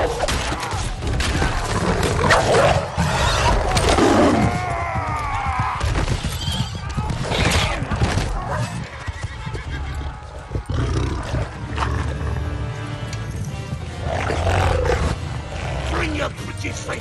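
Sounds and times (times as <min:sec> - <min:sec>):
galloping hooves rumble: 0:03.0 - 0:16.0
horse neighing: 0:08.6 - 0:12.2.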